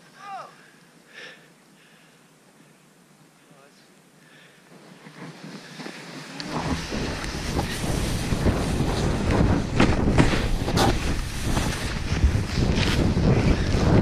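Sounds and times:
snowboard hissing through powder: 0:04.6 - 0:14.0
wind rumbling on microphone: 0:04.8 - 0:14.0.

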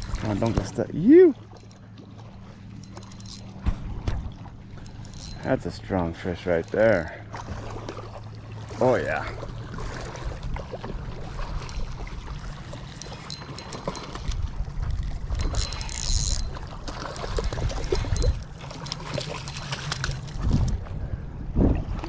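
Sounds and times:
low rumble: 0:03.2 - 0:06.2, 0:16.4 - 0:22.0
fish splashing in water: 0:07.3 - 0:08.8, 0:16.4 - 0:20.7.

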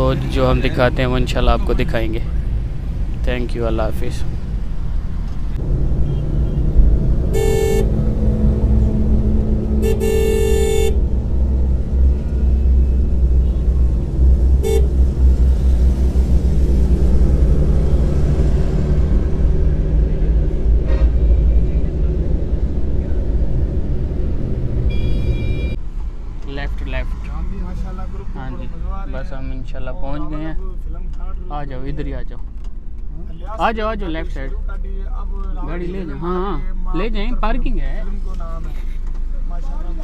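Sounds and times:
van engine and road rumble: 0:00.0 - 0:40.0
car horns honking: 0:05.8 - 0:13.8, 0:14.5 - 0:15.5, 0:24.8 - 0:25.8.

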